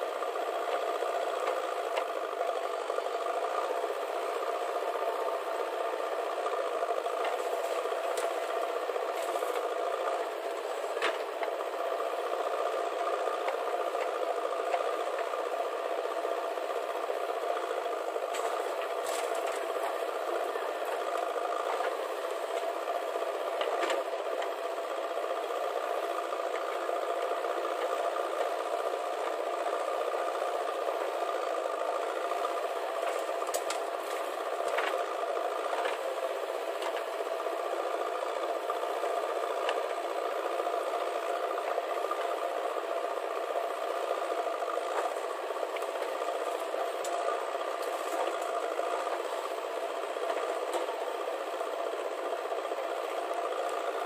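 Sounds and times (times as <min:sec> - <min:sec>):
diesel engine under load: 0:00.0 - 0:54.0
tractor running: 0:00.0 - 0:54.0.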